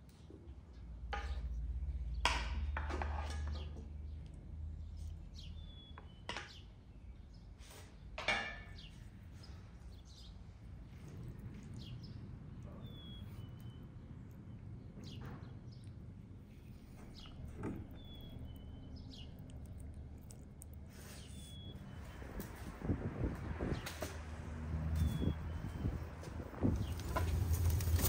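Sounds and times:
bird chirps: 11.6 - 22.2, 24.9 - 26.1.

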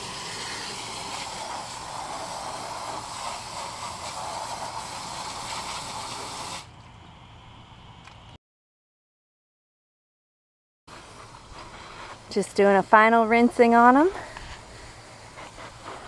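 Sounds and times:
hose spray hissing and splashing: 0.0 - 6.7, 10.9 - 16.0.

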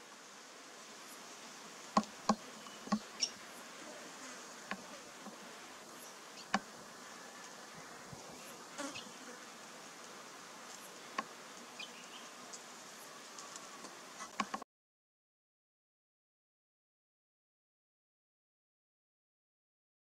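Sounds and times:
bee buzzing: 0.0 - 14.5.

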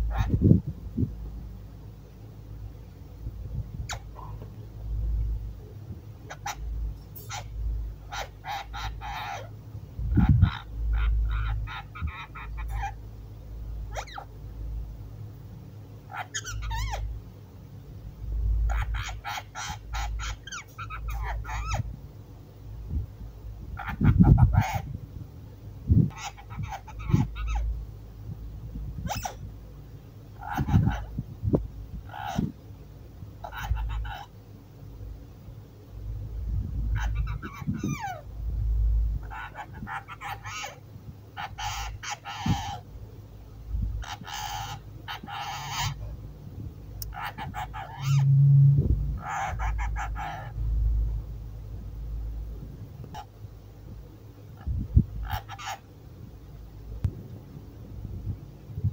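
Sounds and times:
parakeet squawking and chattering: 0.0 - 0.4, 3.8 - 4.4, 6.2 - 13.0, 13.8 - 14.4, 16.0 - 17.2, 18.6 - 21.9, 23.7 - 25.0, 26.1 - 27.7, 29.0 - 29.5, 30.3 - 31.2, 32.0 - 32.6, 33.4 - 34.4, 36.8 - 38.3, 39.2 - 42.9, 44.0 - 46.1, 47.0 - 51.2, 52.1 - 53.4, 54.6 - 55.9
low rumble: 45.8 - 54.0.

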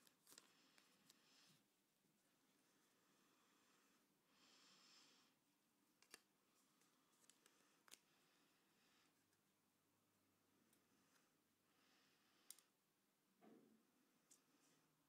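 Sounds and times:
paper rustling: 0.0 - 1.2.

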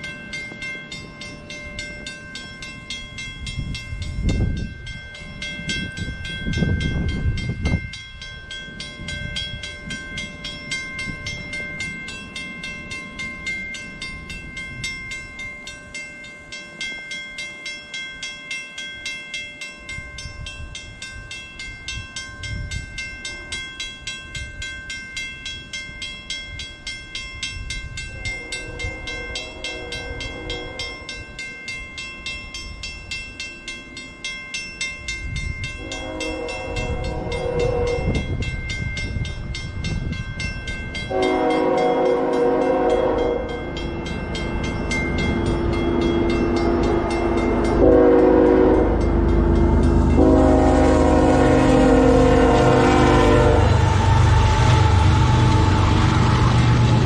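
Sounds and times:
level-crossing bell ringing: 0.0 - 56.4
locomotive air horn blasts: 28.1 - 31.1, 35.8 - 38.2, 41.1 - 43.6, 47.7 - 49.1, 50.2 - 57.0
diesel locomotive rumble: 35.2 - 57.0.

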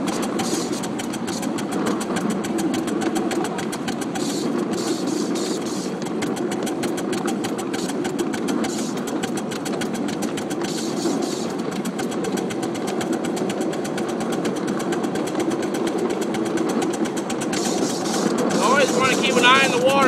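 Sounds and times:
steam hiss: 0.0 - 1.6, 4.1 - 6.1, 7.5 - 9.2, 10.5 - 11.8, 17.4 - 20.0
steady rumble: 0.0 - 20.0
steam locomotive exhaust chuffs: 0.0 - 20.0.

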